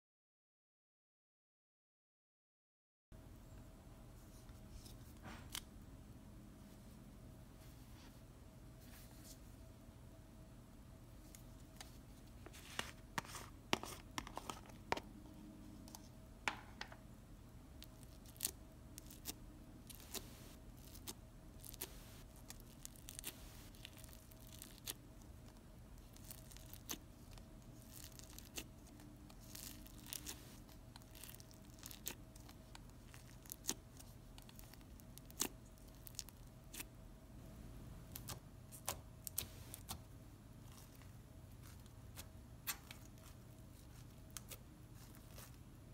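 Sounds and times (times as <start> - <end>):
foam bead slime crackling and popping: 17.8 - 36.9, 38.1 - 45.7.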